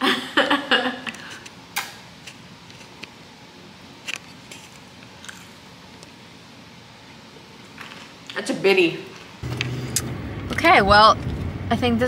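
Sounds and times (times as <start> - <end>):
person chewing crispy food: 5.2 - 5.6.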